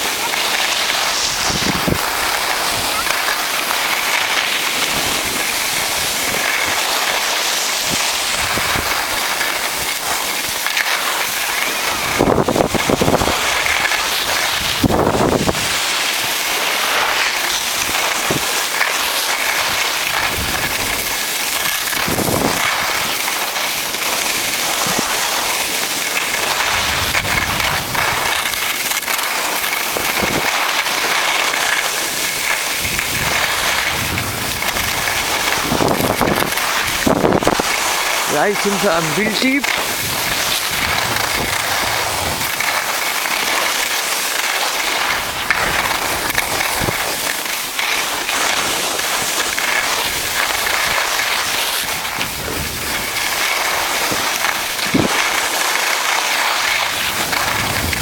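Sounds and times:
skis scraping over snow: 0.0 - 58.0
wind buffeting microphone: 1.2 - 3.0, 14.5 - 15.8, 32.8 - 38.9, 57.0 - 58.0.

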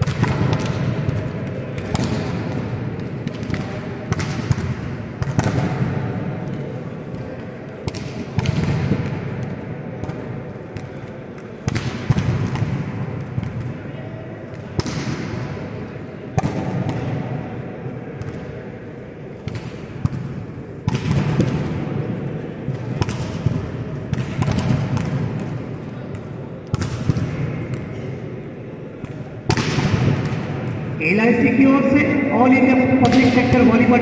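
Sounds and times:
volleyball smacks echoing: 0.0 - 6.0, 19.4 - 21.8, 22.7 - 28.0, 29.0 - 31.0, 33.0 - 34.0
murmur of voices: 0.0 - 34.0.

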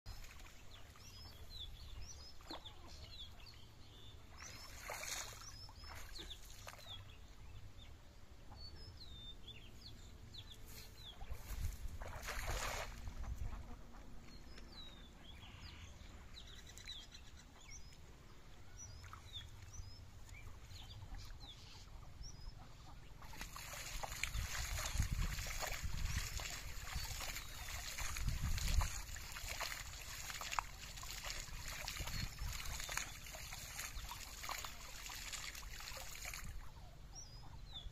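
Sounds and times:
small birds chirping: 0.1 - 37.9
water splashing: 4.0 - 7.1, 10.8 - 13.7, 23.2 - 36.8
wind on microphone: 24.2 - 29.3, 31.6 - 33.0.

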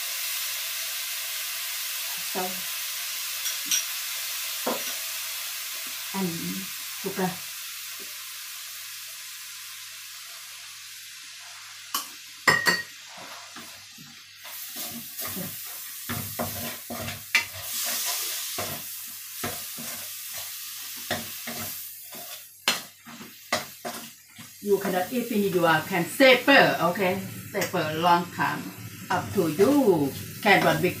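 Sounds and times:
food sizzling in a wok: 0.0 - 31.0
spatula scraping wok: 12.8 - 31.0.

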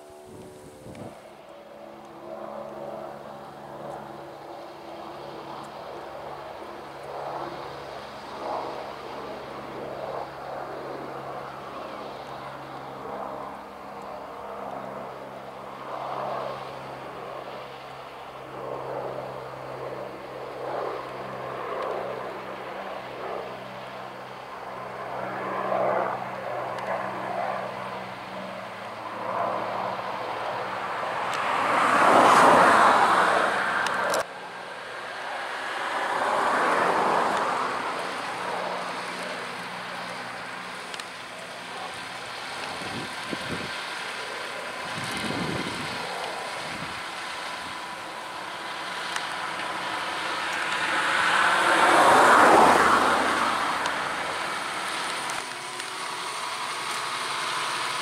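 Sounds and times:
tractor diesel engine under load: 44.8 - 58.0.

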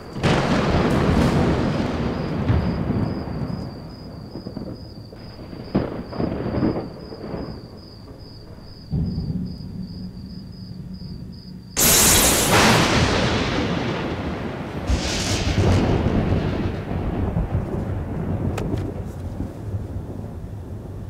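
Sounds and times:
very loud crash: 11.8 - 17.0.

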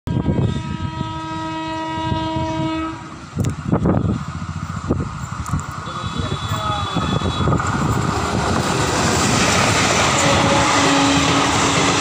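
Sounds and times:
locomotive horn blast: 0.1 - 3.2, 5.8 - 7.8, 10.0 - 12.0
train rumbling: 0.1 - 12.0.

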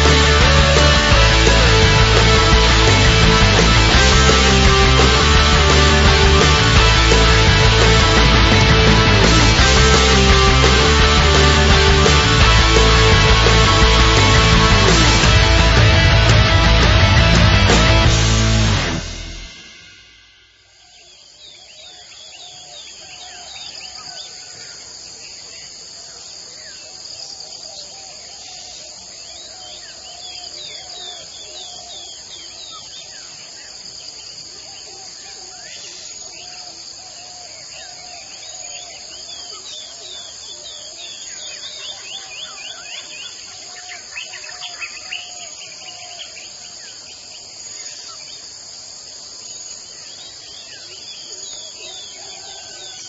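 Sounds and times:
crickets chirping: 19.0 - 53.0.

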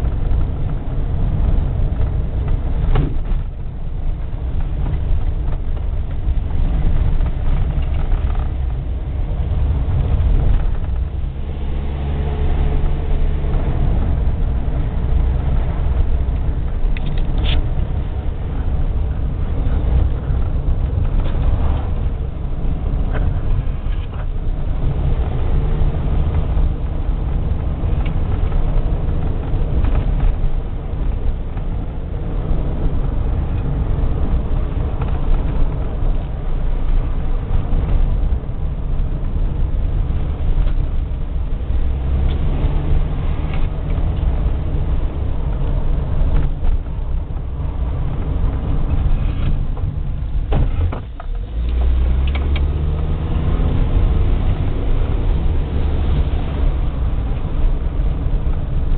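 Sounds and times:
car engine and tyre rumble: 0.0 - 58.9.

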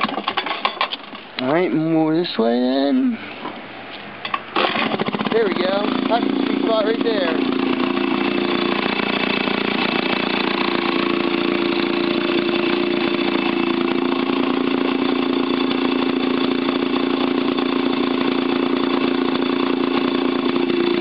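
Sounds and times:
two-stroke engine running: 4.5 - 21.0.

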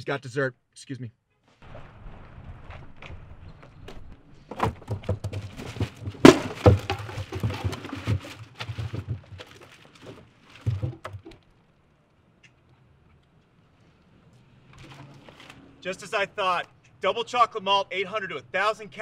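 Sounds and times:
plastic and paper bags rustling: 1.5 - 11.5
loud thump: 1.6 - 8.3
knocks: 3.9 - 11.4.

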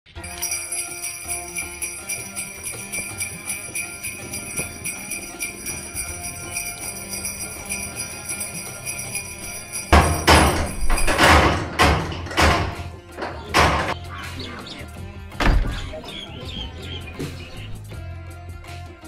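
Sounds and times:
jingling bell rhythm: 0.1 - 11.6
background music with sustained tones: 0.1 - 19.0.

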